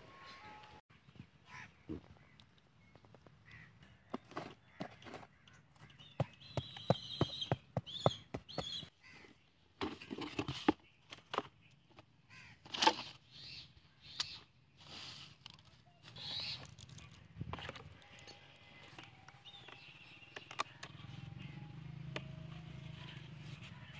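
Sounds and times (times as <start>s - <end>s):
birds calling: 0.0s - 23.9s.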